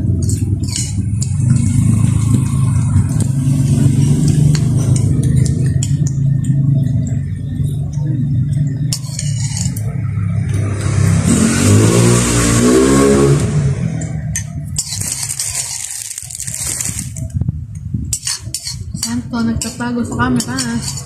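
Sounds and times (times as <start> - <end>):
low motor drone: 0.0 - 14.8.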